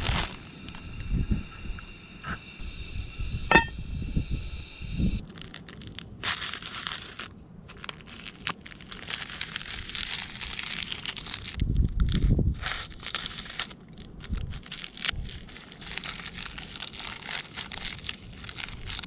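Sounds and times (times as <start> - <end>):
plastic packets crinkling: 0.0 - 0.8, 5.2 - 19.0
high insect drone: 0.0 - 5.2.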